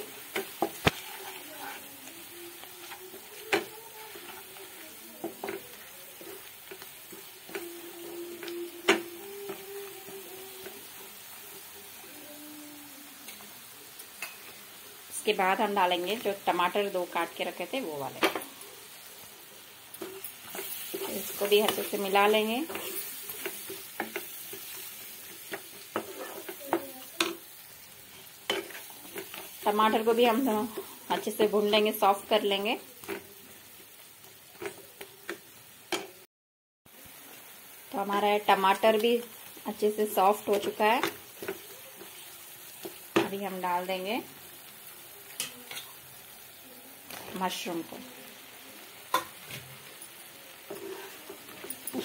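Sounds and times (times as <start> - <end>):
spatula scraping pan: 0.0 - 11.1, 20.0 - 27.5, 50.6 - 52.0
onions sizzling in hot oil: 0.0 - 36.3, 36.9 - 52.0.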